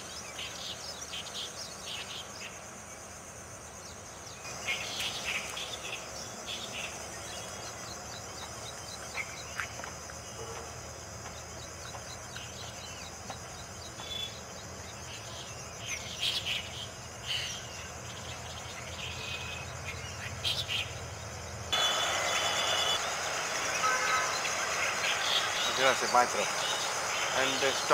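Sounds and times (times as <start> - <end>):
pulsing insect chorus: 0.0 - 27.9
loud noise: 21.7 - 27.9.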